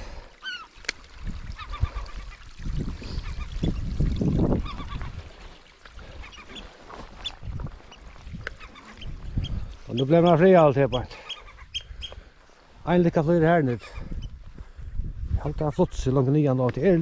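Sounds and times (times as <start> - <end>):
gulls calling: 0.0 - 0.8, 1.5 - 3.8, 4.5 - 12.4
wind buffeting microphone: 1.1 - 17.0.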